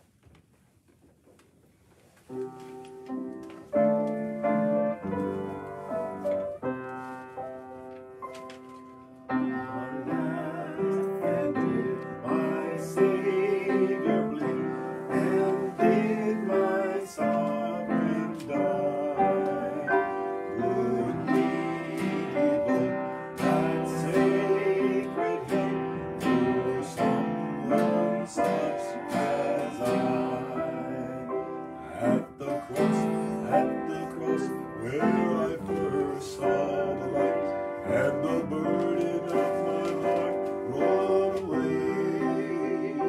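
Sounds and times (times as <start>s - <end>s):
acoustic guitar: 1.3s - 43.0s
upright piano: 2.2s - 43.0s
person singing: 9.4s - 43.0s.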